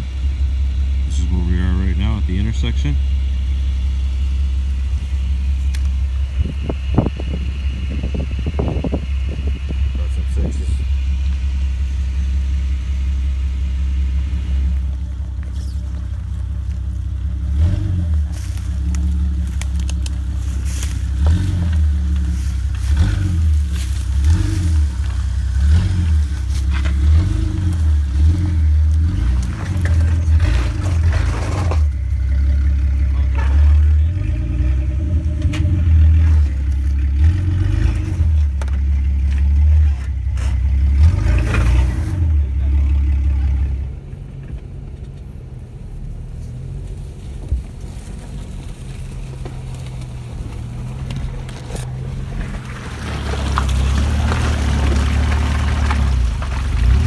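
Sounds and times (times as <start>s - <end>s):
car engine at low revs: 0.0s - 57.0s
tyres scraping on stone: 20.5s - 31.9s, 49.1s - 57.0s.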